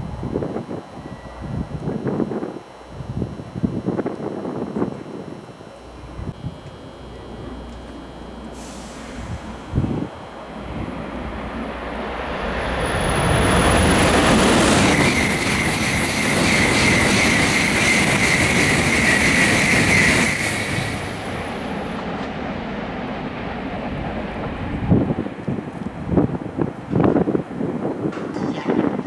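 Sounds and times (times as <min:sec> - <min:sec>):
train high whine: 0:00.0 - 0:29.0
bullet train passing: 0:05.7 - 0:29.0.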